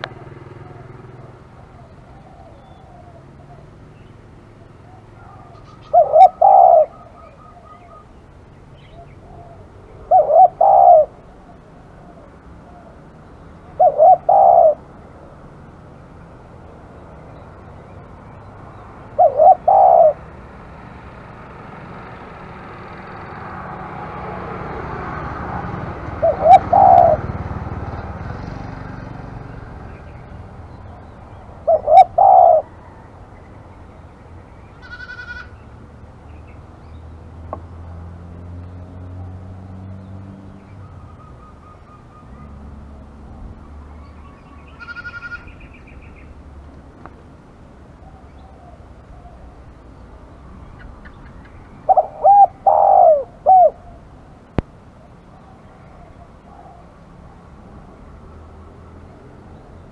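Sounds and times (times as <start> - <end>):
dove cooing: 0.0 - 8.1, 8.8 - 15.0, 18.8 - 20.6, 23.9 - 29.6, 30.8 - 33.1, 50.7 - 54.2, 55.3 - 57.4
small bird chirping: 0.0 - 11.6, 50.3 - 54.0.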